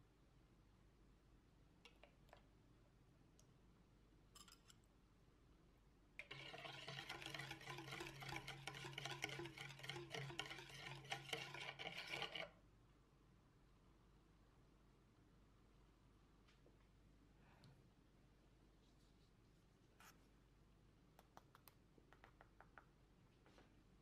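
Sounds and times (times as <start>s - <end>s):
whisk beating batter in bowl: 6.2s - 12.6s.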